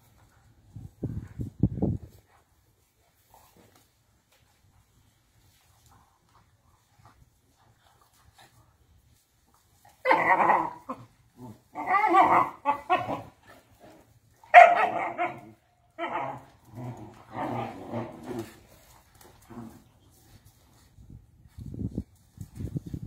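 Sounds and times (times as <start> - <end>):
dogs growling and barking: 9.9 - 19.9.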